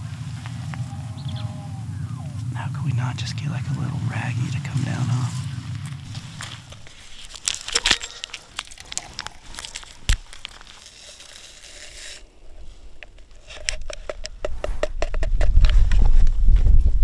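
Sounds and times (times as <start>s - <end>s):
packet crinkling and tearing: 5.8s - 12.3s
powder ticking into bottle: 6.2s - 12.2s.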